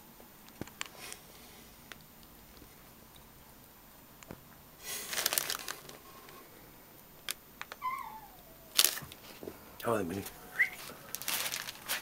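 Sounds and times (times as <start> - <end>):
rustling and crackling: 4.2 - 6.4, 8.7 - 12.0.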